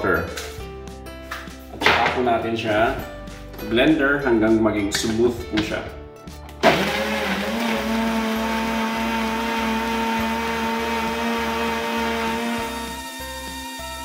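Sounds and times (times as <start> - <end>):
blender motor whining: 6.6 - 14.0.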